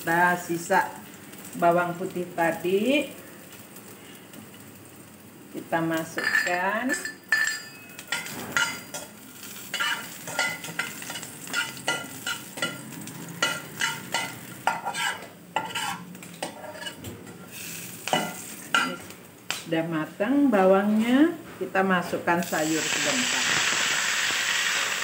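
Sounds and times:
garlic sizzling in hot oil: 0:00.0 - 0:19.5, 0:22.3 - 0:25.0
metal spatula scraping pan: 0:09.7 - 0:17.4.

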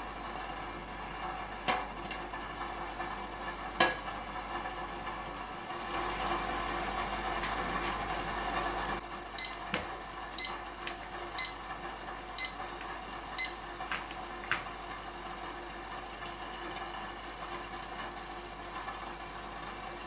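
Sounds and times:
boiling water hissing: 0:00.0 - 0:10.4
kitchen timer beeping: 0:09.4 - 0:09.8, 0:10.4 - 0:10.8, 0:11.4 - 0:11.8, 0:12.4 - 0:12.8, 0:13.4 - 0:13.7.

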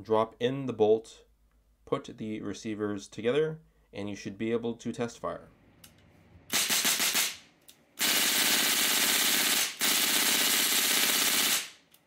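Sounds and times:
airsoft rifle full auto bursts: 0:06.5 - 0:07.4, 0:08.0 - 0:11.9.

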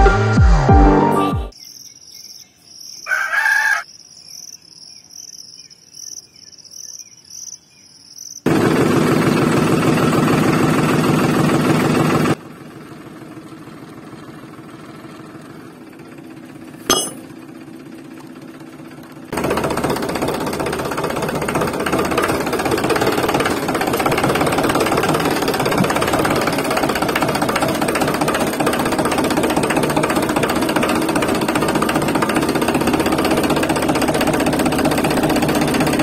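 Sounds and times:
insects chirping: 0:01.5 - 0:08.5
small motor rattling and humming: 0:08.5 - 0:36.0.

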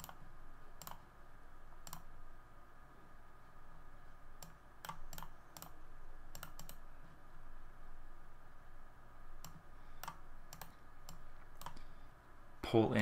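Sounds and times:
computer mouse clicking: 0:00.0 - 0:01.1, 0:01.8 - 0:02.1, 0:04.4 - 0:06.9, 0:09.4 - 0:11.9.

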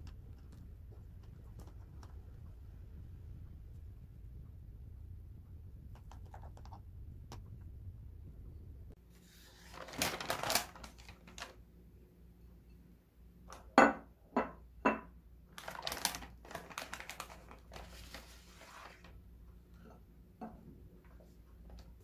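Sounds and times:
paper bag rustling: 0:09.2 - 0:11.6, 0:15.6 - 0:19.2.

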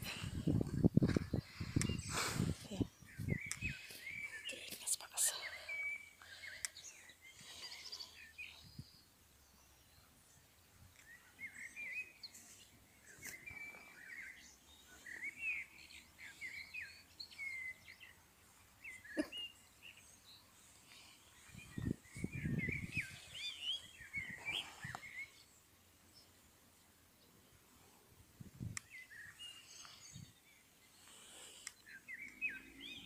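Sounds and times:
small birds chirping: 0:00.0 - 0:33.0
sharp clicks: 0:03.4 - 0:03.7.

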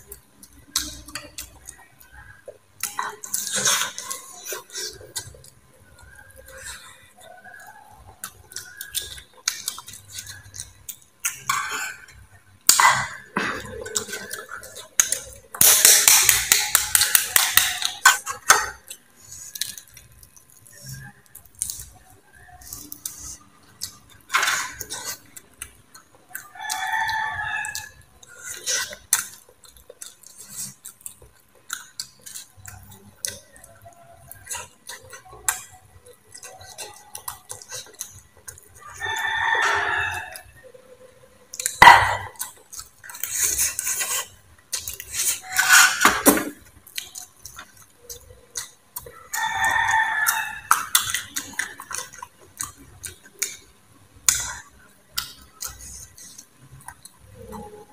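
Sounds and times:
eating sounds: 0:00.0 - 0:57.9
rooster crowing: 0:26.5 - 0:28.0, 0:38.8 - 0:40.6, 0:49.1 - 0:50.9.

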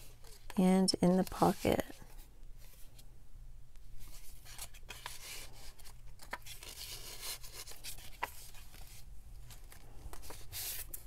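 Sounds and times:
page turning: 0:04.0 - 0:11.0
paper rustling and crackling: 0:04.0 - 0:11.0.

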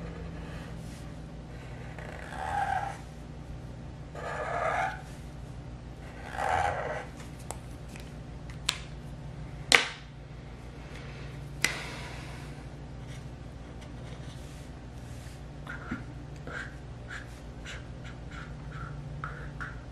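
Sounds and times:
marker scratching on paper: 0:01.9 - 0:03.0, 0:04.2 - 0:05.1, 0:06.1 - 0:07.1.

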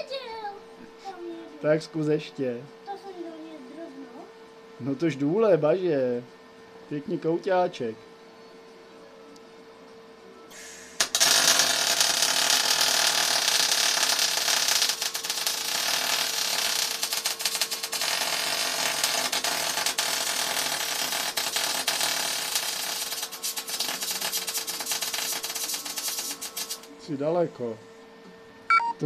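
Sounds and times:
welder hum: 0:10.5 - 0:27.0
welding arc crackling: 0:10.6 - 0:26.9
welding arc click: 0:11.0 - 0:26.9.

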